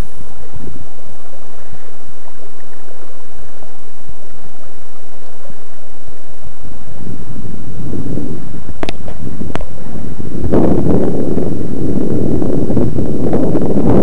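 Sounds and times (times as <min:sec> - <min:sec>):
wind buffeting microphone: 0:06.8 - 0:14.0.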